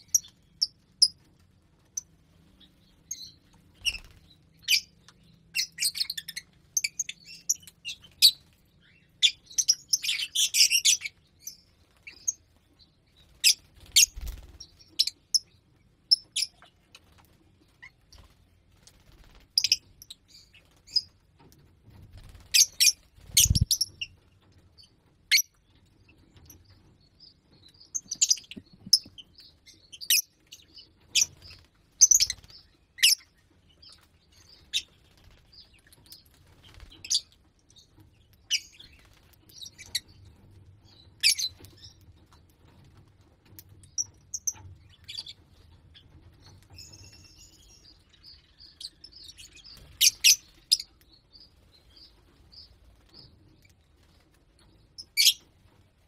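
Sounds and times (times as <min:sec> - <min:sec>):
lovebirds chirping: 0:00.0 - 0:21.2, 0:22.0 - 0:42.5, 0:43.6 - 0:54.2, 0:54.8 - 0:55.6.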